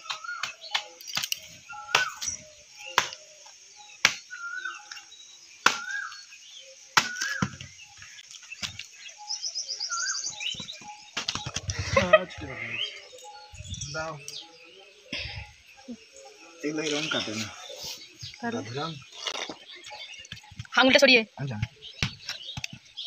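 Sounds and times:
bird whistling: 0:00.0 - 0:07.7, 0:09.1 - 0:15.6
high bird trill: 0:00.0 - 0:08.1, 0:09.0 - 0:23.0.

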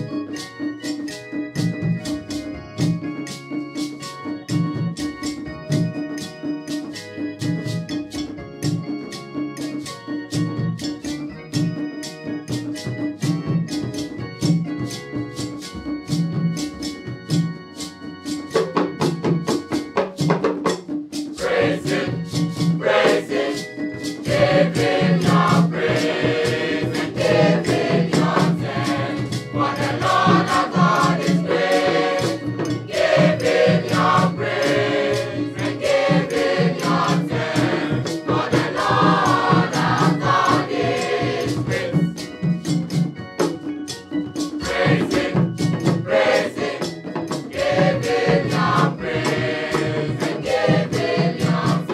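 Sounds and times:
percussive beat: 0:00.0 - 0:51.9
choir singing gospel: 0:21.3 - 0:42.9, 0:44.6 - 0:51.9.

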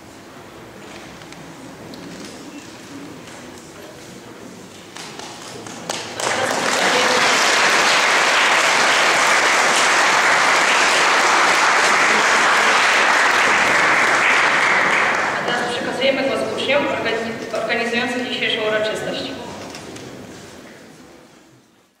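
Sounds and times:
audience applauding: 0:05.0 - 0:15.9.

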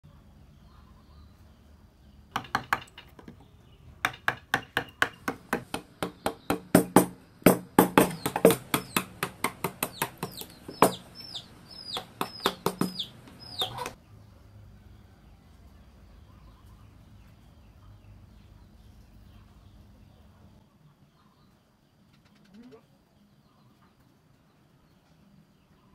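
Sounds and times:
mallet striking chisel into wood: 0:02.3 - 0:03.4, 0:04.0 - 0:11.1, 0:11.8 - 0:13.9.

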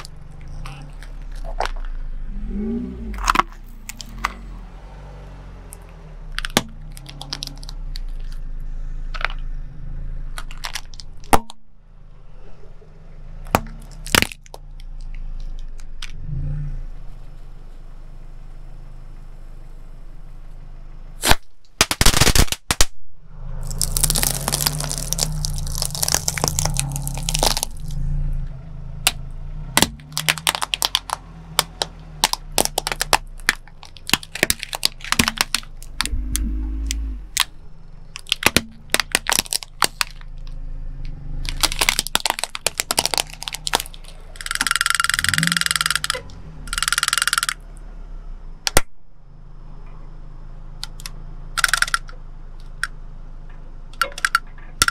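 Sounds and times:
plastic toys cracking and crunching: 0:00.0 - 0:02.1, 0:03.1 - 0:04.4, 0:05.7 - 0:08.5, 0:09.1 - 0:09.5, 0:10.3 - 0:11.6, 0:13.4 - 0:16.2, 0:21.2 - 0:23.0, 0:23.6 - 0:28.0, 0:29.0 - 0:40.6, 0:41.4 - 0:47.6, 0:48.7 - 0:48.9, 0:50.8 - 0:53.0, 0:53.9 - 0:54.9
car engine running low: 0:00.0 - 0:54.9.

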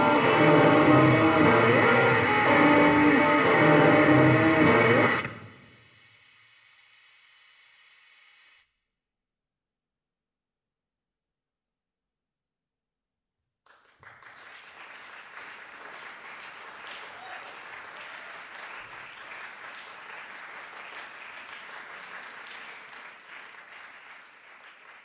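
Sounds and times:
audience applause: 0:13.7 - 0:25.0.

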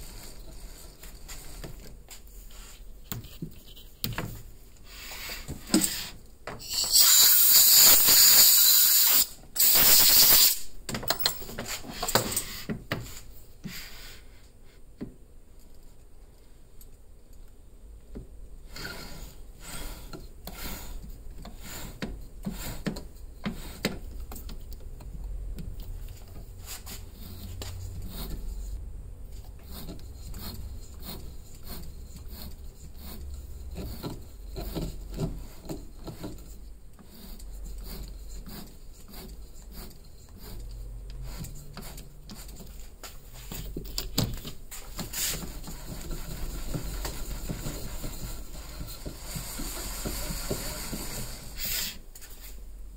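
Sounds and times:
small lathe turning: 0:29.6 - 0:40.8, 0:45.0 - 0:51.7.

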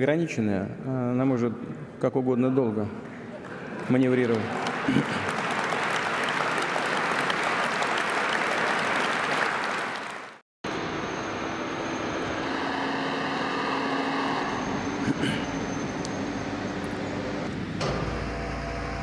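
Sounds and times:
audience applauding: 0:03.1 - 0:10.4
truck engine droning: 0:10.7 - 0:19.0.

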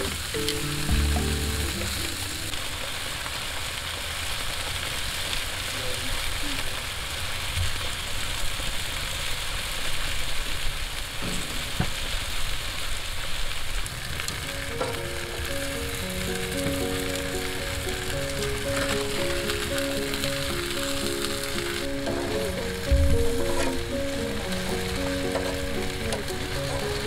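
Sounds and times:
soft background music: 0:00.0 - 0:02.8, 0:14.4 - 0:27.0
food sizzling on a grill: 0:00.0 - 0:27.0.

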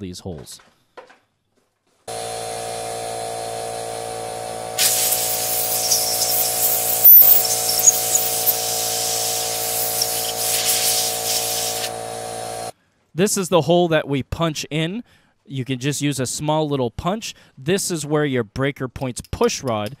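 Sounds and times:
steady hum: 0:03.6 - 0:12.7
spray hissing: 0:04.8 - 0:12.0.

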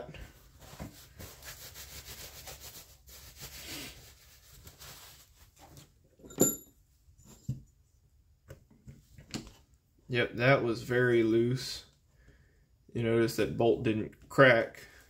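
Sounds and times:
cloth rubbing on engine block: 0:00.2 - 0:05.8.

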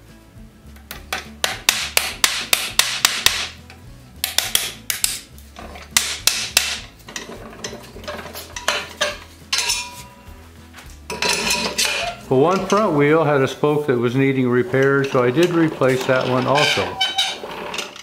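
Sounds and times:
hammer tapping a wooden wedge: 0:00.9 - 0:03.5.

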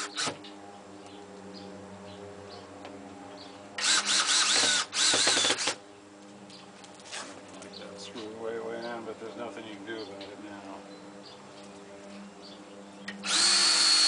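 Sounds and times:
cordless drill whining: 0:00.0 - 0:00.4, 0:03.8 - 0:05.8, 0:13.2 - 0:14.0.

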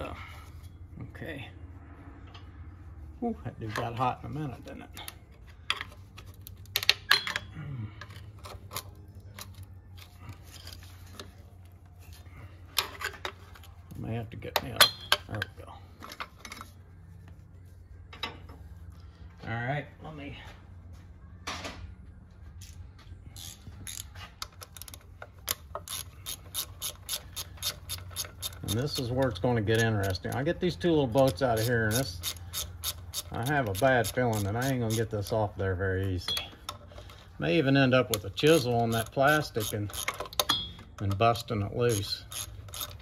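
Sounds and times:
steady low hum: 0:00.0 - 0:38.9
hand ratchet clicking: 0:23.4 - 0:30.5, 0:31.1 - 0:35.3, 0:38.0 - 0:43.0.

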